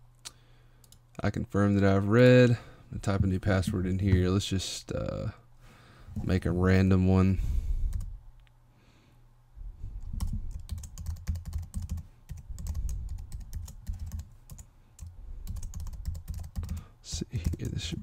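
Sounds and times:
keyboard typing: 0:10.1 - 0:17.9.

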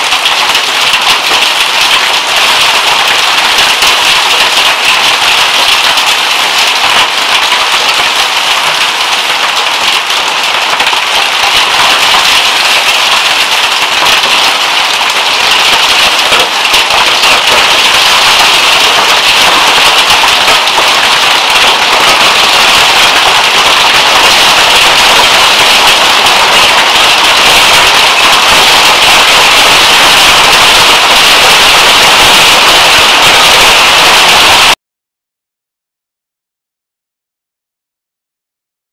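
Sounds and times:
driving rain: 0:00.0 - 0:34.8
hail clattering: 0:00.0 - 0:34.8.

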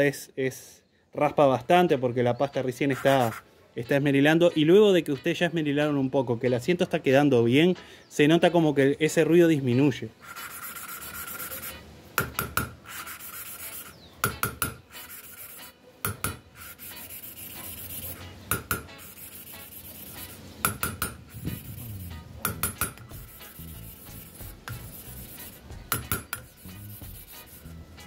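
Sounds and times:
valve grinding gritty rasp: 0:21.2 - 0:25.6, 0:26.3 - 0:27.8.

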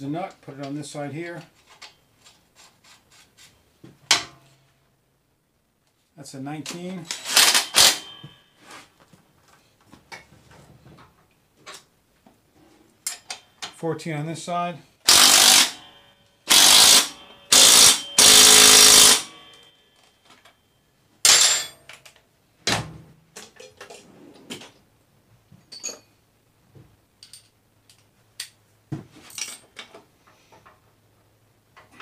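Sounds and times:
tools clinking and knocking: 0:06.7 - 0:08.6, 0:13.0 - 0:13.8, 0:15.1 - 0:20.6, 0:21.3 - 0:22.2, 0:25.6 - 0:26.2, 0:27.2 - 0:30.8
cordless impact driver: 0:07.2 - 0:08.1, 0:15.1 - 0:15.8, 0:16.5 - 0:19.3.

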